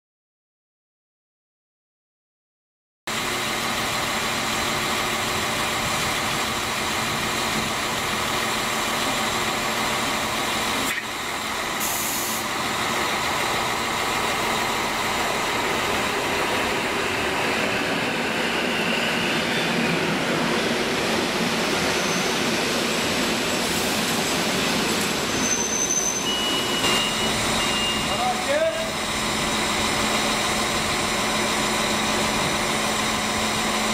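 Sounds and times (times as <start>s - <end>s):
electric train running with whine: 12.4s - 33.9s
short high squeals: 21.8s - 22.6s, 25.3s - 29.0s.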